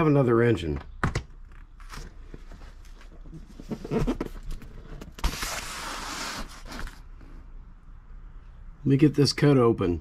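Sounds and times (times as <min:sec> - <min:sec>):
box scraping across bench: 0:03.5 - 0:07.0.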